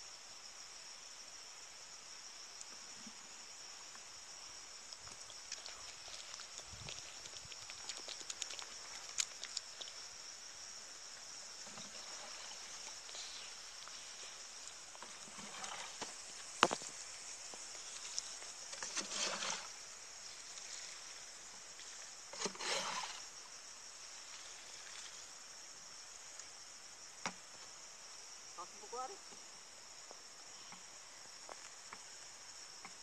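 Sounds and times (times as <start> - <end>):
high insect drone: 0.0 - 33.0
water splashing onto soil: 5.0 - 10.1.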